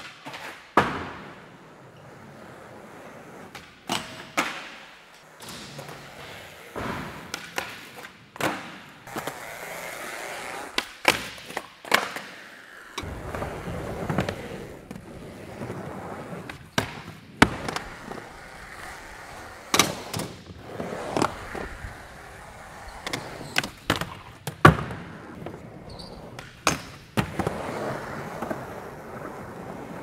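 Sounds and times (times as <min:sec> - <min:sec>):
skateboard wheels rolling: 0:00.0 - 0:30.0
skateboard clacks: 0:13.0 - 0:30.0.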